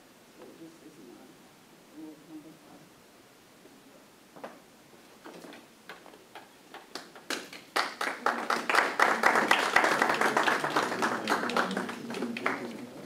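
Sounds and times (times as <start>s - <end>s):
people clapping: 6.4s - 13.0s.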